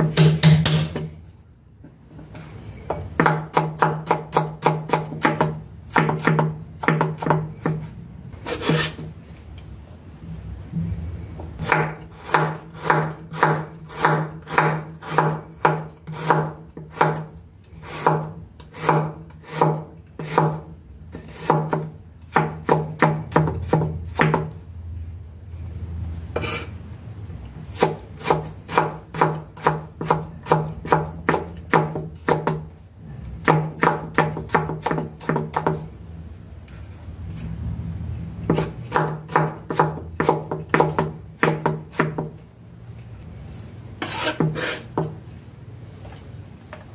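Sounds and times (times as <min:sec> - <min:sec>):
knife chopping on wooden board: 0:00.0 - 0:01.1, 0:02.9 - 0:09.1, 0:11.6 - 0:17.3, 0:17.9 - 0:20.6, 0:21.2 - 0:24.5, 0:38.4 - 0:42.4.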